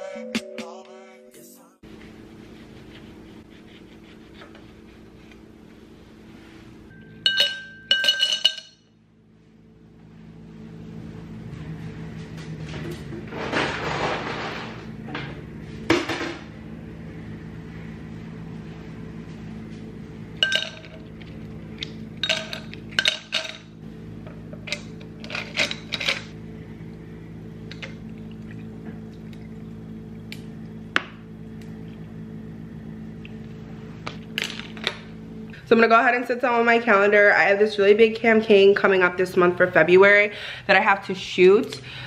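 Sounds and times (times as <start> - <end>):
fruit clinking against glass: 7.2 - 8.8.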